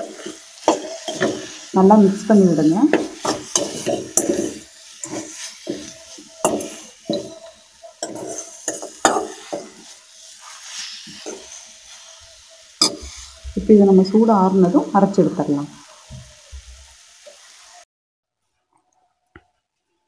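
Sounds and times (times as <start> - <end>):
spoon scraping metal pan: 0.0 - 1.7, 2.6 - 13.6.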